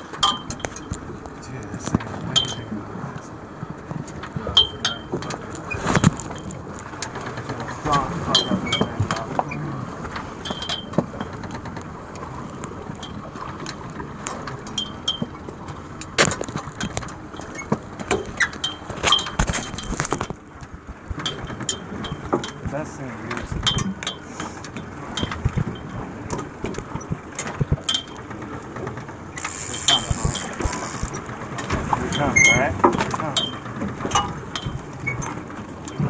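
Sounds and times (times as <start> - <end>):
wind and water hiss: 0.0 - 36.0
fishing reel clicking: 29.4 - 31.2.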